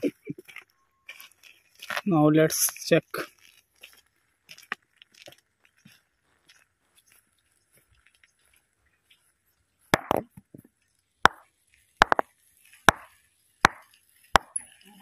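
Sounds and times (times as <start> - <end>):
stone clacking against boulder: 9.9 - 10.5, 11.3 - 14.6.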